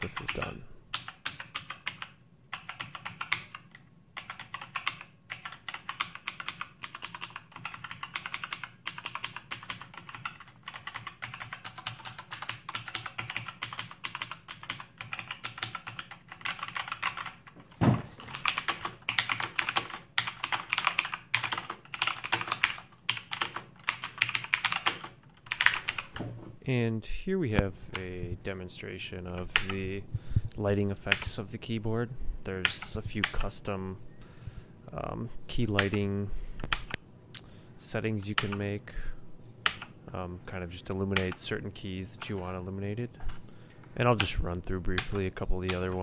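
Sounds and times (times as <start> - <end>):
mechanical keyboard clicks: 0.0 - 17.4, 18.2 - 26.1
heavy thud: 17.8 - 18.2.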